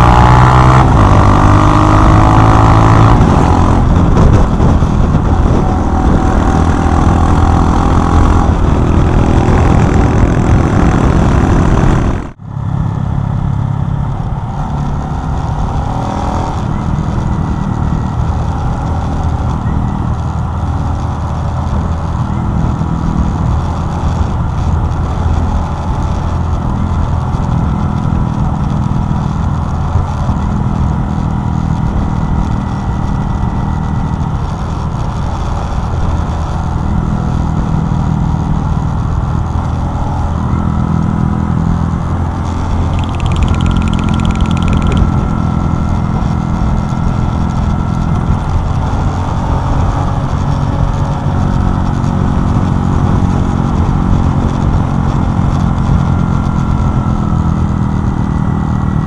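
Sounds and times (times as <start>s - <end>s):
wind noise: 0.0s - 12.3s, 14.0s - 58.4s
motorcycle engine running: 36.9s - 59.0s.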